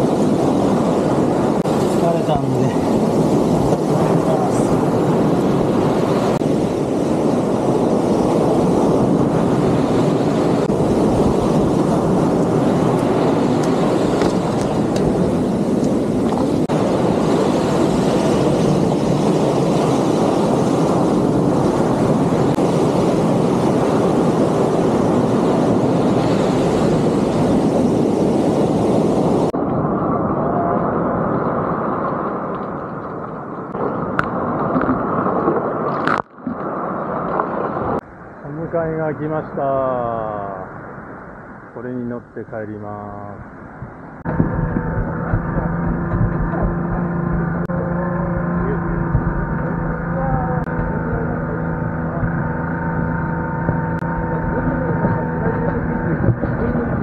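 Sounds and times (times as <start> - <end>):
ocean surf breaking on sand: 0.0 - 41.4.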